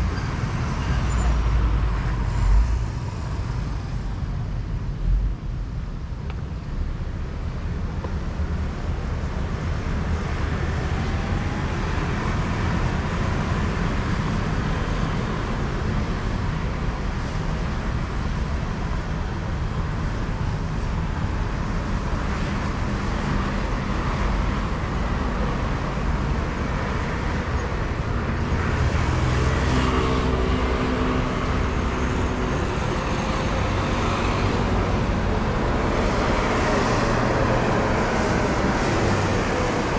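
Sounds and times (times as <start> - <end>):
street traffic rumble: 0.0 - 39.9.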